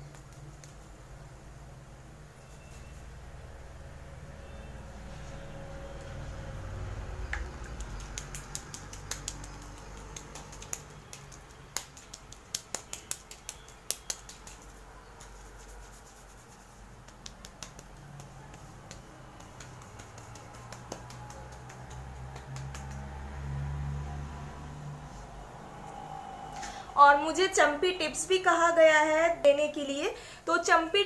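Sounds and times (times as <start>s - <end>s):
wet sticky hair smacking: 7.4s - 23.3s.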